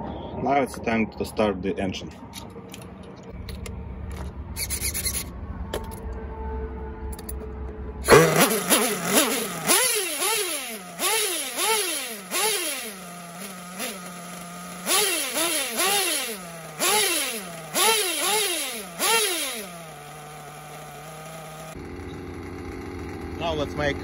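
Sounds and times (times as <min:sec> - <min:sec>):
model engine revving and idling: 0:08.0 - 0:24.0.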